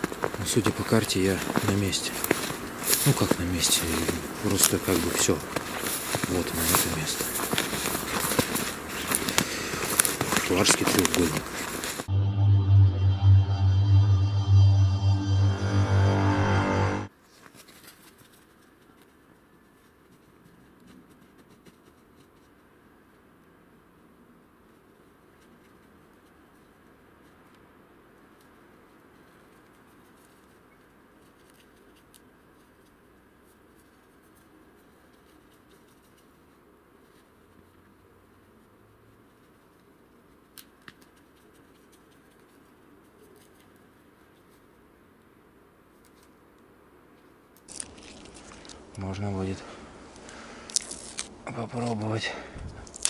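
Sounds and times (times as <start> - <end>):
snaps and crackles in undergrowth: 0.0 - 12.0, 47.5 - 49.3, 50.2 - 52.0, 52.8 - 53.0.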